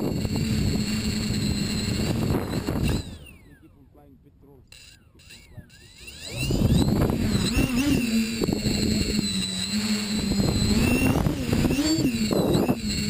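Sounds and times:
wind rumble on microphone: 0.0 - 3.2, 6.3 - 13.0
drone motors whining: 0.0 - 13.0.

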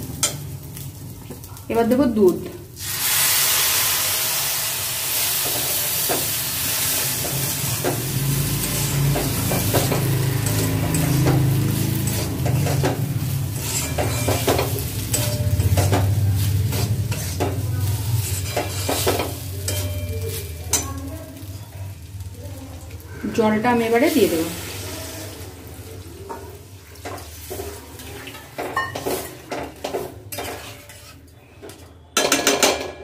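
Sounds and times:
rice sizzling: 0.0 - 31.6
metal spatula scraping a pan: 5.1 - 21.0, 27.0 - 31.8.

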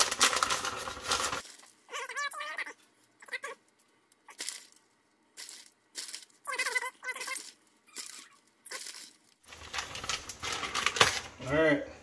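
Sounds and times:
plastic bag crinkling: 0.0 - 1.8, 5.4 - 11.4.

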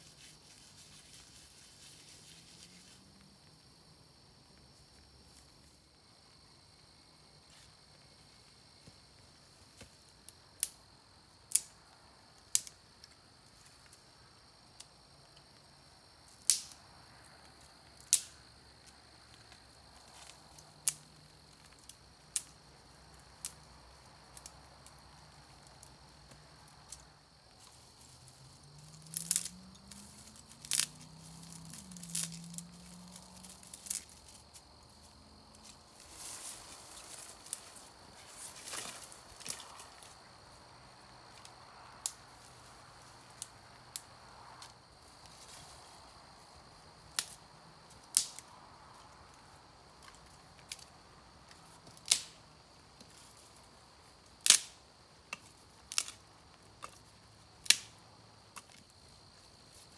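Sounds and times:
high insect drone: 0.0 - 59.9
twigs snapping: 11.5 - 11.7, 12.5 - 12.8, 16.4 - 16.8, 25.6 - 34.7, 35.6 - 40.2, 47.1 - 47.4, 48.1 - 48.5, 51.5 - 52.4, 54.4 - 56.2, 57.6 - 58.0.

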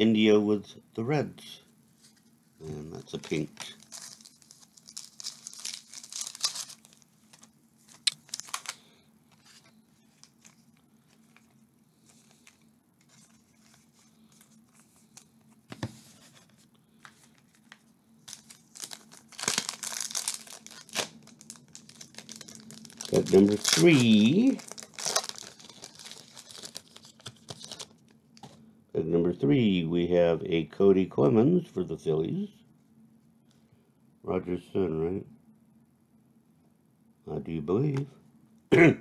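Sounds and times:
wrapper tearing and crinkling: 3.3 - 9.6, 18.2 - 28.0.

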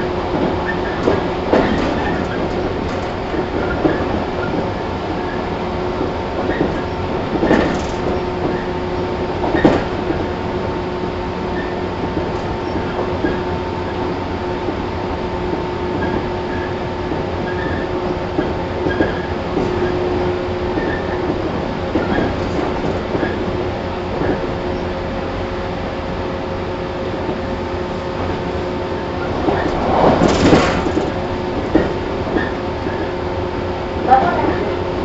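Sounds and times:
electric train drone and whine: 24.0 - 34.0.

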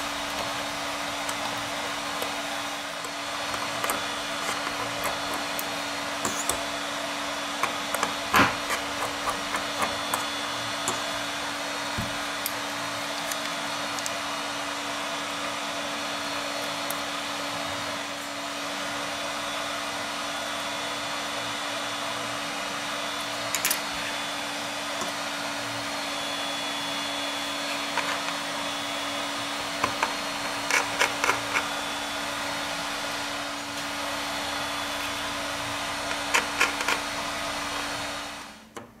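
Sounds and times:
screwdriver and tweezers tapping metal: 3.0 - 6.7, 7.6 - 11.3, 12.0 - 14.1, 29.8 - 31.7.

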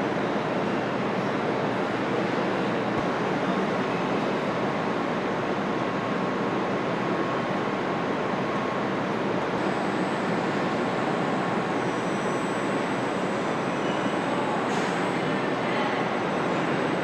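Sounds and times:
factory hall noise: 0.0 - 17.0
faint high whine: 8.6 - 15.6.

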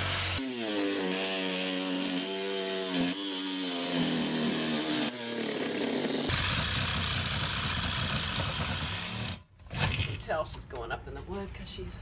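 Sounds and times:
reciprocating saw cutting: 0.0 - 9.4.

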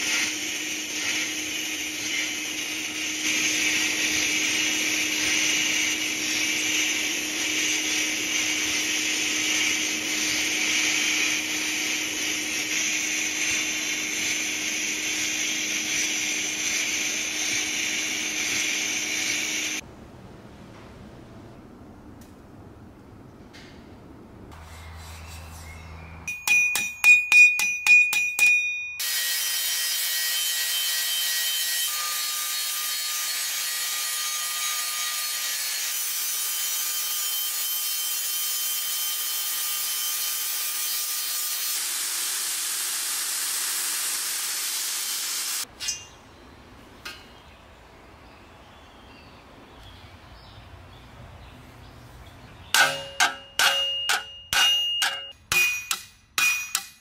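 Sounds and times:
angle grinder grinding steel: 0.0 - 19.8, 52.8 - 57.0
hammer strikes on metal blade: 26.3 - 29.0, 52.8 - 57.0
ringing metal taps: 26.3 - 29.0, 52.8 - 57.0.

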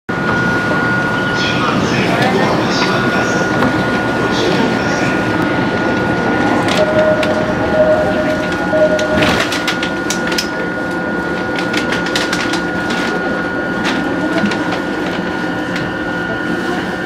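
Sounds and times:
train electrical hum: 0.1 - 17.0
mid-pitched tone: 6.1 - 10.1.

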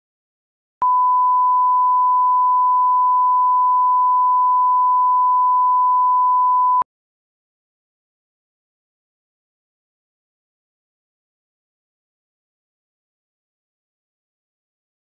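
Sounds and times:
steady test tone beep: 0.8 - 6.8.

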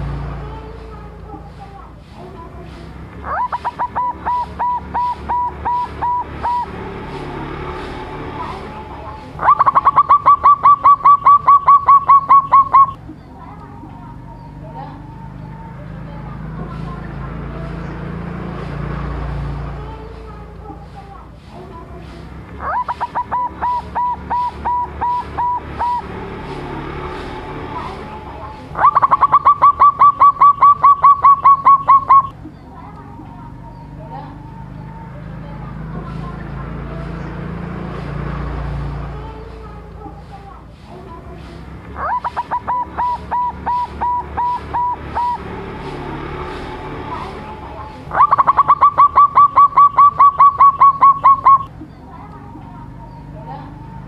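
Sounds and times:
dove cooing: 2.2 - 17.0, 21.6 - 32.6, 40.9 - 51.7.

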